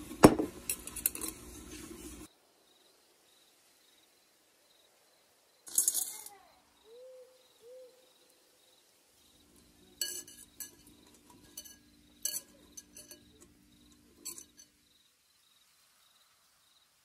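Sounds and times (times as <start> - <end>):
pebbles clinking against glass bowl: 5.7 - 6.4, 9.6 - 14.7.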